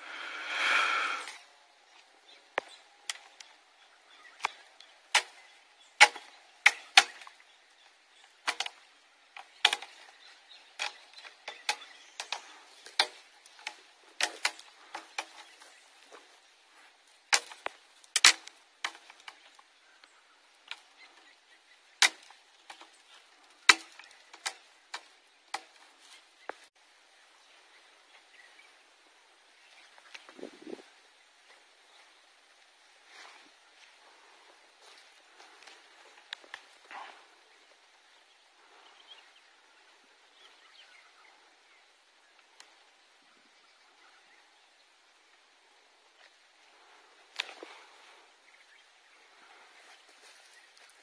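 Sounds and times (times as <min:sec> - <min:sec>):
sharp clicks and knocks: 0:08.4 - 0:10.1, 0:17.3 - 0:19.7, 0:23.6 - 0:25.8.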